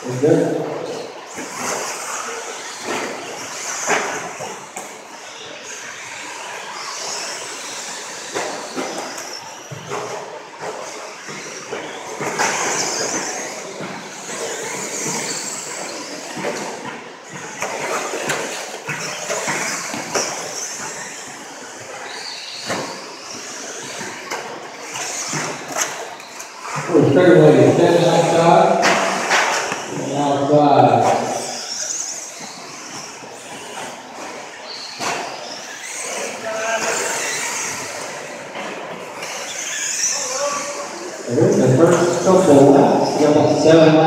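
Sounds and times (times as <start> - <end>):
rc truck motors: 0.0 - 44.0.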